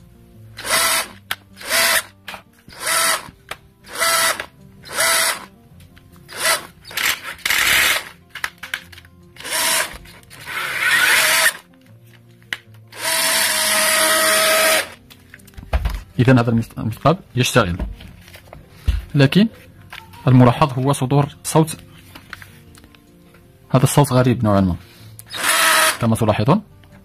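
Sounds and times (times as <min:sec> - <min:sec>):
cordless drill motor spinning up: 0:00.6 - 0:02.1, 0:02.7 - 0:03.3, 0:03.9 - 0:05.5, 0:06.3 - 0:08.2, 0:09.4 - 0:11.6, 0:12.9 - 0:15.0, 0:25.3 - 0:26.1.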